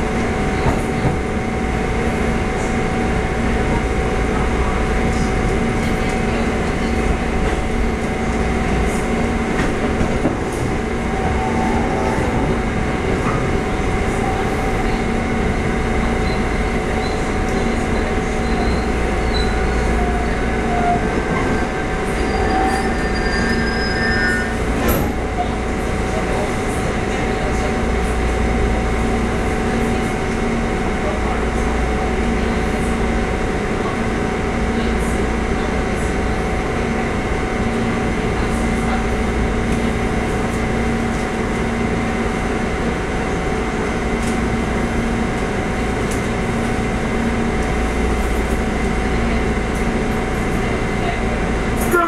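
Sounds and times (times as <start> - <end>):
train running rumble and hum: 0.0 - 52.0
brief high squeals: 22.2 - 24.6.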